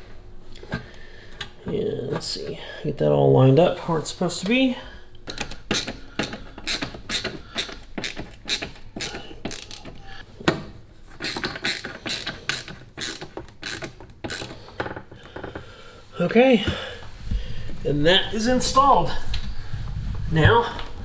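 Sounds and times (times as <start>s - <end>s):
ratcheting screwdriver clicking: 5.3s - 10.0s, 11.2s - 14.6s.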